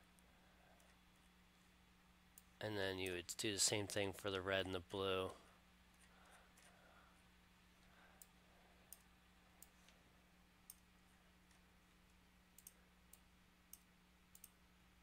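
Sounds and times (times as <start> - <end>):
low steady hum: 0.0 - 15.0
computer mouse clicks: 8.2 - 10.0, 11.5 - 14.6.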